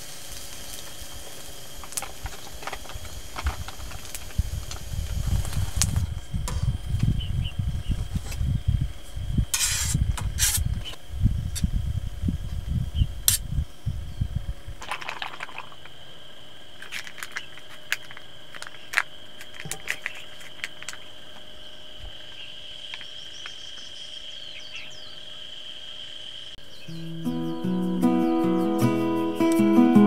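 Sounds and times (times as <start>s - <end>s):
low rumbling rustle: 0.0s - 16.0s
insects droning: 0.0s - 30.0s.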